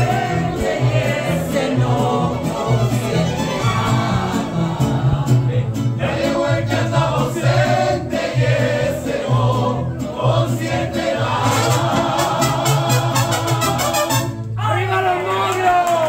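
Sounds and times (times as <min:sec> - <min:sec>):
voices singing together: 0:00.0 - 0:14.3.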